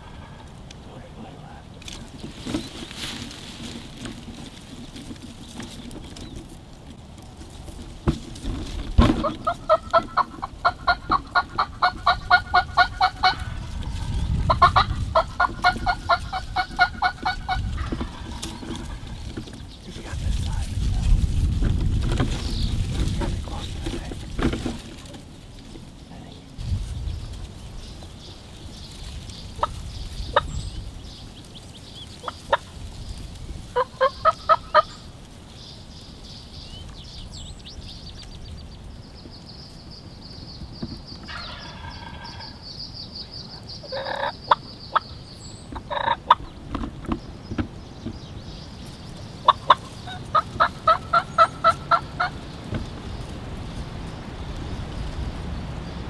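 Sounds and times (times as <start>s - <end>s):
turkey rattling gobble: 0.0s - 0.5s, 9.0s - 19.3s, 29.6s - 30.6s, 32.2s - 32.8s, 33.7s - 35.1s, 41.2s - 42.7s, 43.8s - 45.2s, 45.8s - 46.6s, 49.4s - 52.5s
turkey yelps: 9.2s - 19.0s, 33.7s - 35.0s, 41.3s - 42.6s, 43.8s - 45.1s, 45.8s - 46.4s, 49.5s - 52.4s.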